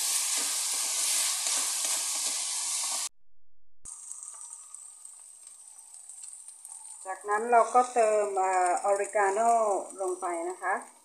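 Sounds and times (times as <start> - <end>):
meat sizzling in a frying pan: 0.0 - 3.1, 3.9 - 11.0
wooden spatula scraping a pan: 0.0 - 3.1.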